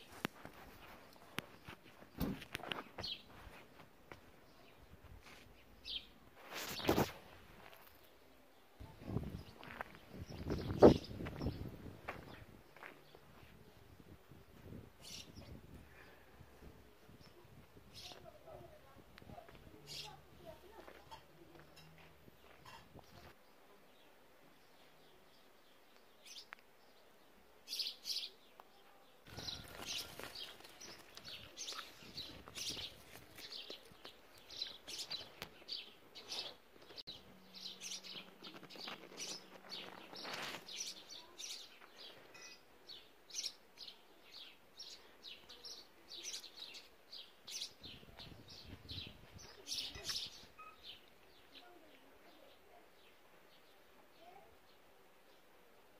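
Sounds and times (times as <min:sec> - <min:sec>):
small birds chirping: 0:00.0 - 0:55.6.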